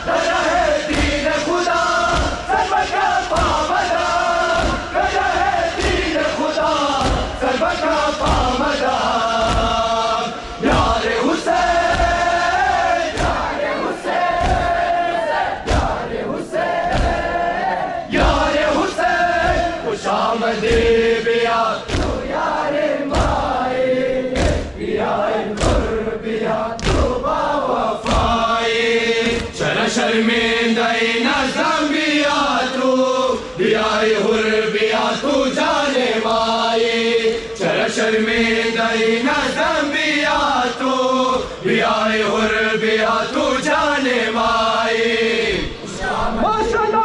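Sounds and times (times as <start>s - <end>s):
men chanting together: 0.0s - 47.0s
chest-beating thumps: 0.3s - 15.0s, 15.6s - 16.1s, 16.8s - 23.6s, 24.3s - 26.0s, 28.0s - 28.5s.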